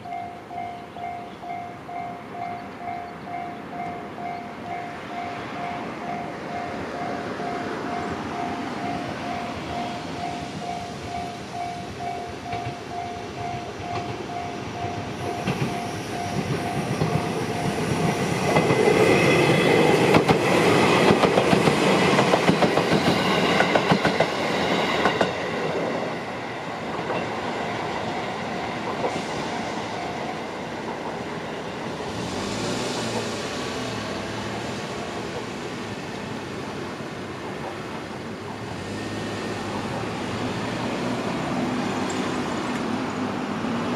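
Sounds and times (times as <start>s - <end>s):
railway crossing bell ringing: 0.0s - 20.6s, 22.7s - 25.4s, 27.1s - 31.8s
electric train passing: 0.0s - 43.9s
train wheels clattering: 9.7s - 25.5s
road vehicle driving past: 32.0s - 35.8s.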